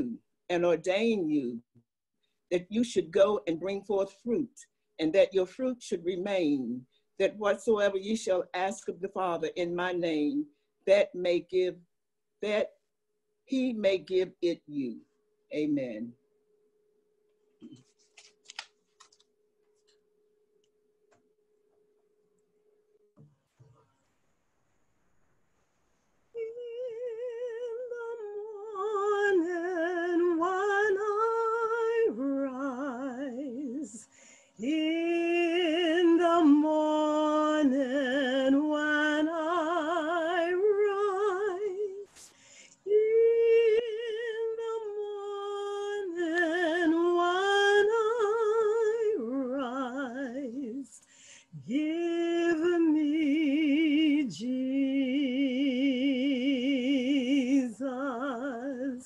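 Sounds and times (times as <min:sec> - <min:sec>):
woman singing unaccompanied: 0:26.3 - 0:42.2, 0:42.8 - 0:51.0, 0:51.6 - 0:59.0.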